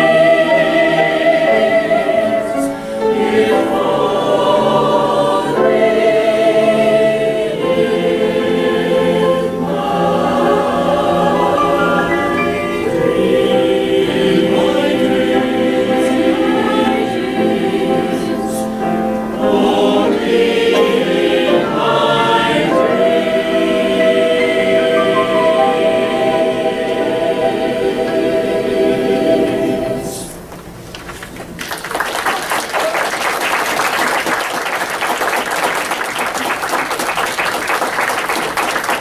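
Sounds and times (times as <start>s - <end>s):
choir holding sung chord: 0.0s - 30.5s
audience applause: 31.1s - 39.0s.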